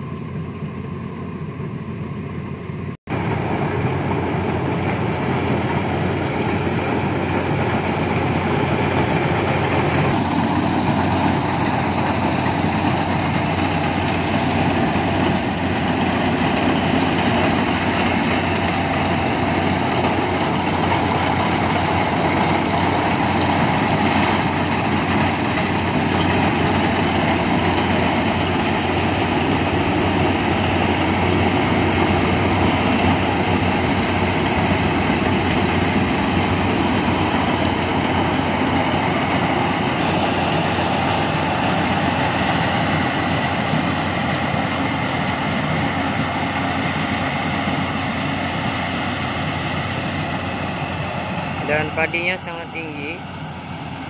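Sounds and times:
combine harvester running: 0.0 - 54.0.

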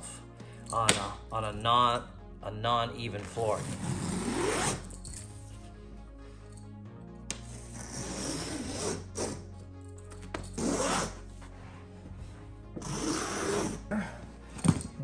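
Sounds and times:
knife slicing through carpet: 10.4 - 11.5.

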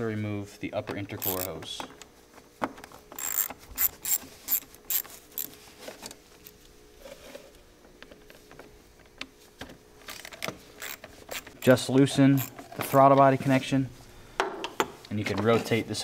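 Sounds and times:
hand ratchet clicking: 1.2 - 1.6, 3.2 - 5.5, 10.1 - 12.6.

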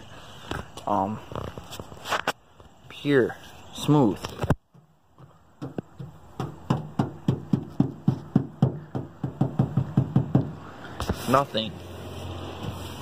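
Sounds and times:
fingertip tapping on car body: 4.6 - 10.6.

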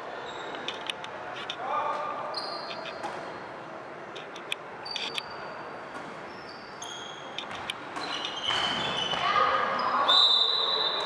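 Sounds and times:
reverberant hall background: 0.0 - 11.0
shoes squeaking on court floor: 0.2 - 0.8, 2.0 - 3.5, 4.8 - 11.0.

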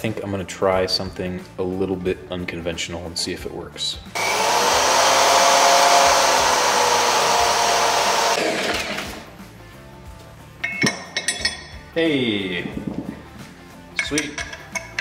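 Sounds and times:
electric drill whining: 4.2 - 9.3
metal clinks: 10.6 - 11.9, 13.9 - 15.0.

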